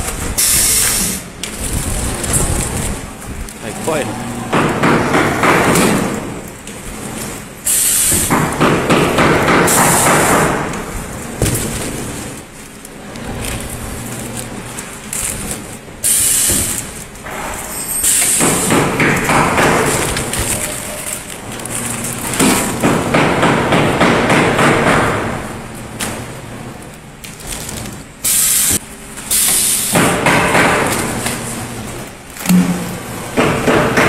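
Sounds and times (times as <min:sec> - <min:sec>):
wrapping machine clattering: 0:00.0 - 0:04.1, 0:05.6 - 0:23.1, 0:25.6 - 0:29.2
machine hissing bursts: 0:00.4 - 0:01.4, 0:07.6 - 0:08.6, 0:09.2 - 0:10.7, 0:16.0 - 0:16.9, 0:17.7 - 0:19.7, 0:28.2 - 0:30.7.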